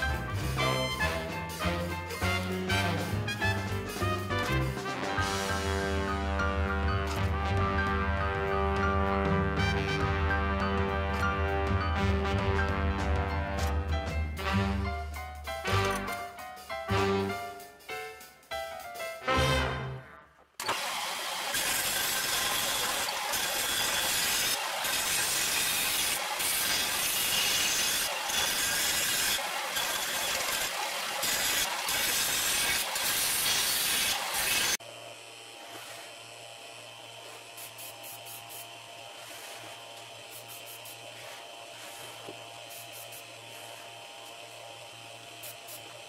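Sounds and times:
electric motor hum: 0:33.7 - 0:46.0.

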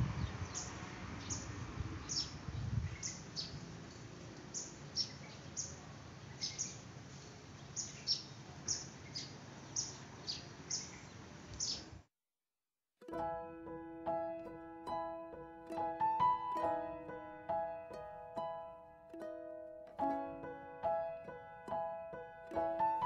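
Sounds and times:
outdoor background noise: 0:00.0 - 0:12.1
small bird chirping: 0:00.2 - 0:03.7, 0:04.5 - 0:12.0
piano music: 0:13.0 - 0:23.0.

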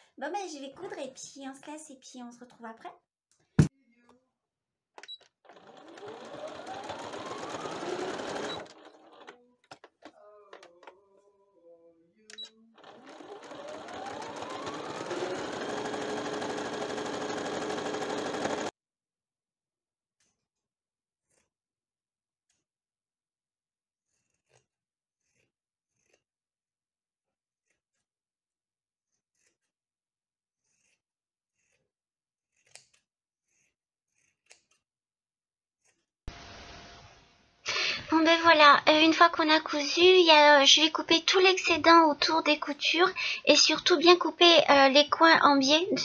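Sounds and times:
electric sewing machine stitching: 0:05.4 - 0:10.9, 0:12.8 - 0:18.8
scissors cutting fabric: 0:24.0 - 0:26.4, 0:27.5 - 0:28.2, 0:29.1 - 0:29.9, 0:30.6 - 0:35.0.

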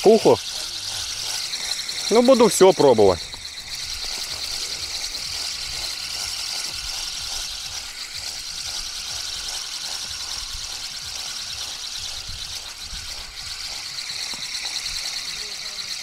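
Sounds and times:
fishing reel gears ticking: 0:00.0 - 0:16.0.

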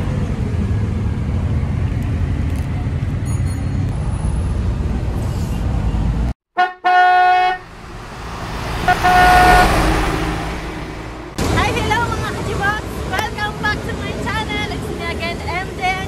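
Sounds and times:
vehicle horn honk: 0:06.6 - 0:11.3
whoosh: 0:07.5 - 0:11.9
low rumble: 0:07.6 - 0:12.0.

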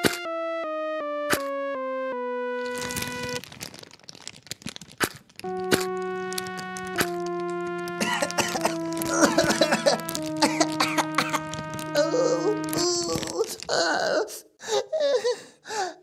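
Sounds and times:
match burning crackle: 0:02.7 - 0:13.7
held synth note: 0:05.5 - 0:10.4
low held chord: 0:05.5 - 0:13.0
child coughing: 0:08.0 - 0:11.4.

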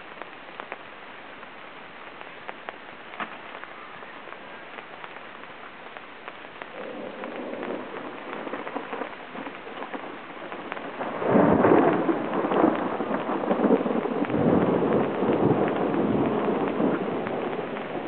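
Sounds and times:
rain on tent canopy: 0:00.0 - 0:18.0
thunder rumbling: 0:06.6 - 0:18.0.

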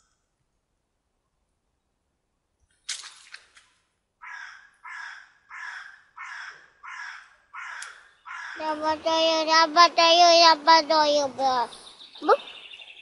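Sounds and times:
sharp crack: 0:02.7 - 0:03.8
crow cawing: 0:04.2 - 0:08.8.

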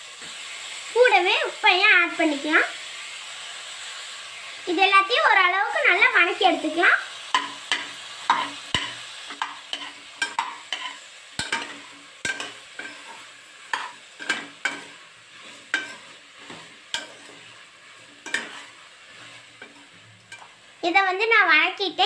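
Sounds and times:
light sizzle: 0:00.0 - 0:22.0
metal ladle scraping pan: 0:07.4 - 0:20.6.

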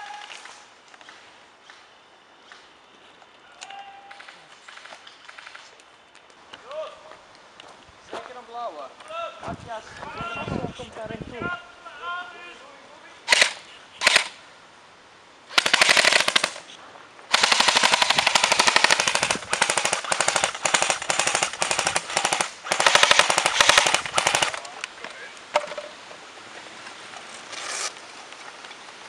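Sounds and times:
airsoft rifle firing: 0:13.3 - 0:14.4, 0:15.5 - 0:16.7, 0:17.3 - 0:24.7.

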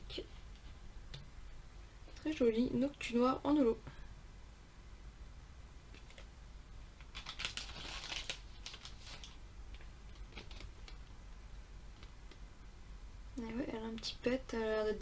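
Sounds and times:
cards and plastic sleeve handled: 0:07.0 - 0:11.1.

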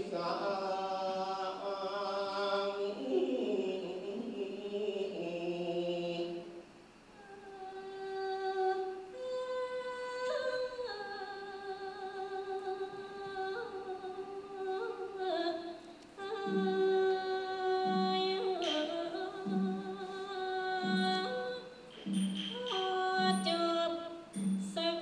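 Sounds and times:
woman singing a blessing chant: 0:00.0 - 0:06.6, 0:07.2 - 0:25.0.

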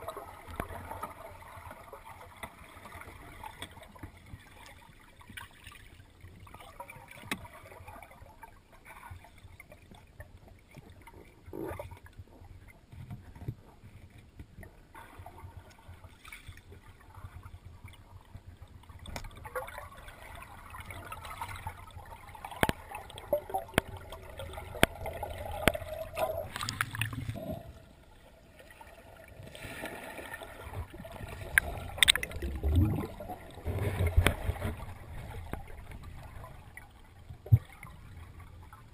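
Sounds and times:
air bubbles gurgling: 0:19.1 - 0:38.9
clicks and knocks: 0:31.5 - 0:32.4.

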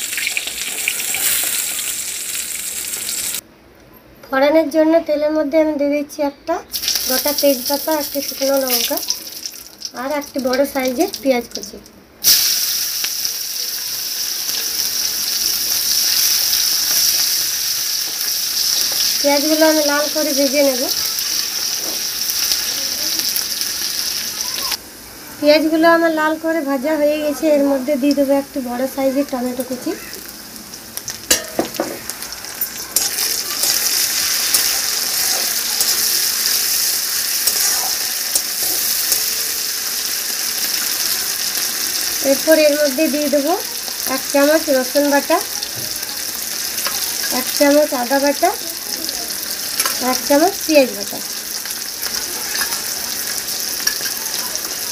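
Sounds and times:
onion sizzling in hot oil: 0:00.0 - 0:03.4, 0:06.7 - 0:54.9
spatula stirring: 0:37.4 - 0:39.3.

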